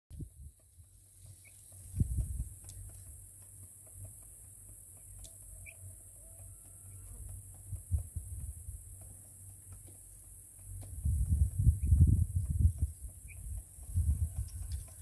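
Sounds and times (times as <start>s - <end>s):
wind rumble on microphone: 0.1s - 1.0s, 1.8s - 3.3s, 7.2s - 9.3s, 10.7s - 15.0s.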